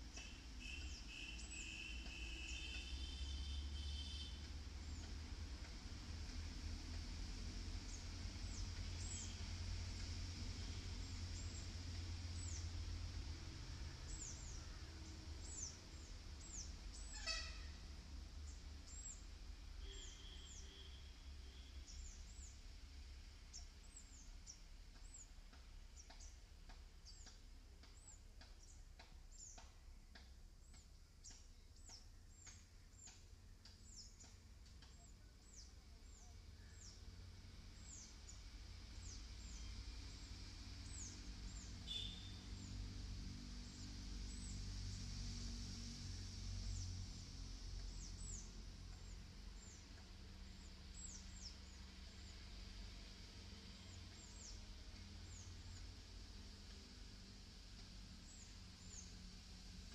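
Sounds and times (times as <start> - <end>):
small birds chirping: 7.9 - 9.5, 14.1 - 17.6, 23.5 - 42.8, 47.7 - 57.0, 57.7 - 59.4.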